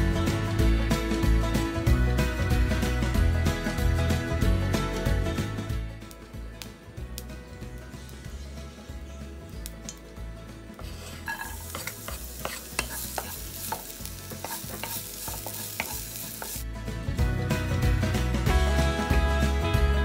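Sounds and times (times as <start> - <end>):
garlic sizzling in oil: 7.9 - 16.7
spatula scraping pan: 10.8 - 16.6.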